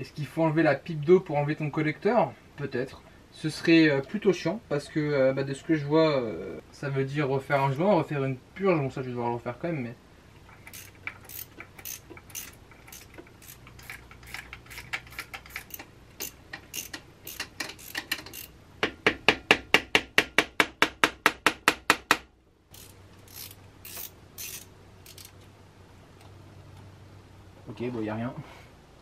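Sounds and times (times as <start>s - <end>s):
ratchet wrench clicking: 10.5s - 18.6s, 22.7s - 25.4s.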